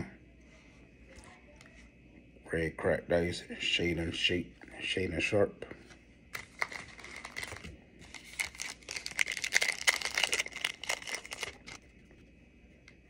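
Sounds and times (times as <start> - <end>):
wrapper tearing and crinkling: 6.4 - 11.8.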